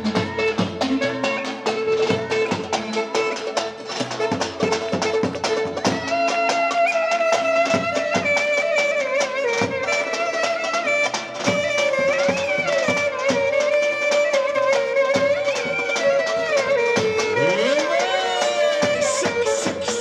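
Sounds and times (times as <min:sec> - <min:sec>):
ornamented lead melody: 0:07.8 - 0:20.0
drum beat: 0:17.0 - 0:20.0.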